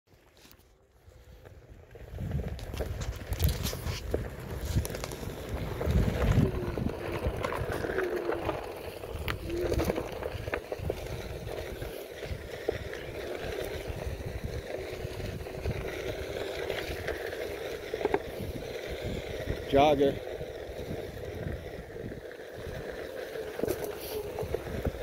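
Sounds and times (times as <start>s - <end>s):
low rumble on dirt trail: 0.1s - 25.0s
electric motor whine: 4.6s - 25.0s.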